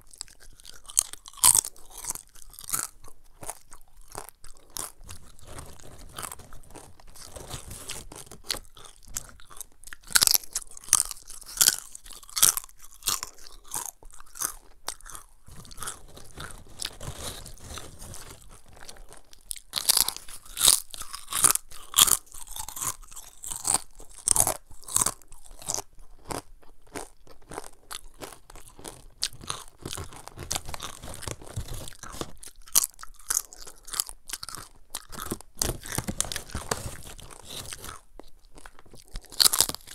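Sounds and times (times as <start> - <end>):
crunching fried chips: 0.0 - 39.9
quiet chewing: 0.0 - 39.9.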